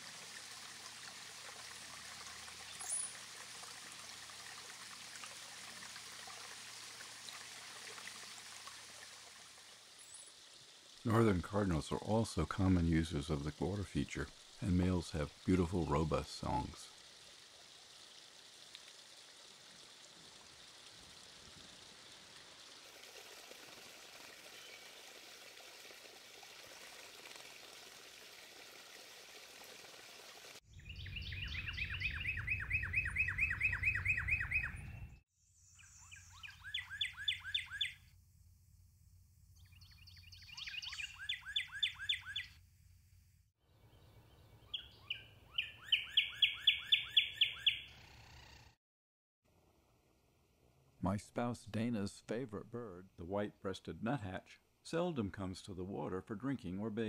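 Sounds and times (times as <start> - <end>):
running water hiss: 0.0 - 30.6
bird singing whistles: 30.7 - 35.2, 35.8 - 38.0, 39.6 - 42.5, 44.7 - 47.9.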